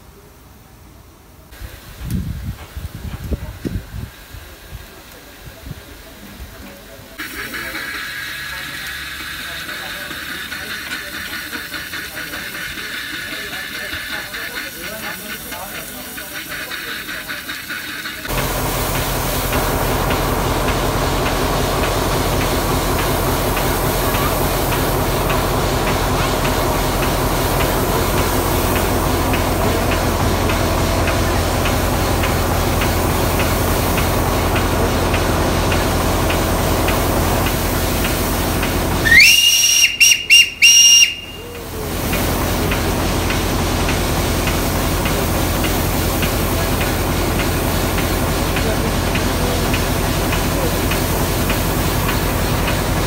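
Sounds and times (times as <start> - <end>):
steam hissing from locomotive: 1.4 - 53.0
shrill steam whistle blasts: 39.0 - 41.6.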